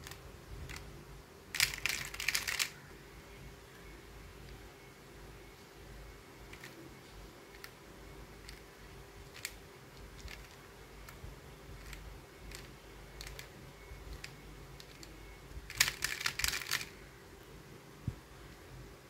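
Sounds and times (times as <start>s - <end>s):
plastic puzzle clicks: 1.5s - 2.8s, 9.3s - 11.2s, 14.1s - 17.0s.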